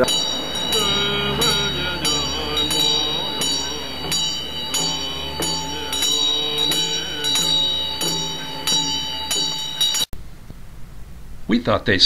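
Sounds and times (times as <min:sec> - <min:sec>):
low drone: 0:00.0 - 0:10.1
ringing bell-like tone: 0:00.0 - 0:10.1.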